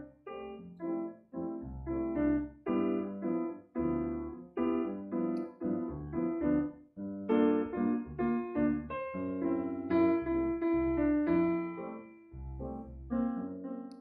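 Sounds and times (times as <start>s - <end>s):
solo piano chords: 0.0s - 14.0s.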